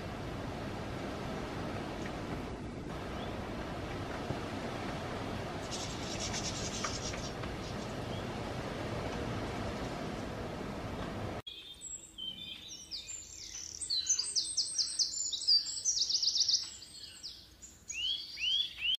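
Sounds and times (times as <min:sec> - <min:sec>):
outdoor noise haze: 0:00.0 - 0:15.0
songbird twittering: 0:03.0 - 0:03.6, 0:05.6 - 0:08.4, 0:11.5 - 0:19.0.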